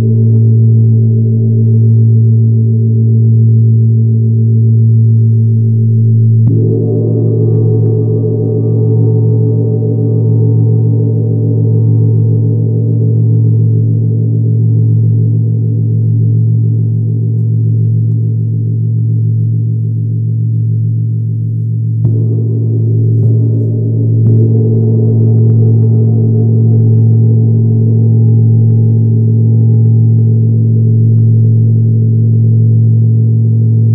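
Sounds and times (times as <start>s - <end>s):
gong ringing: 6.5s - 10.4s, 22.0s - 28.1s.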